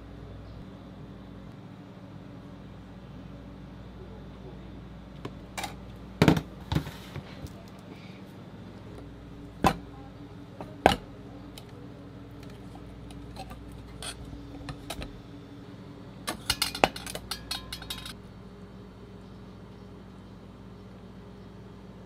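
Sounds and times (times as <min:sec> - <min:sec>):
steady low hum: 0:00.0 - 0:22.0
clinks against steel bowl: 0:16.3 - 0:18.2.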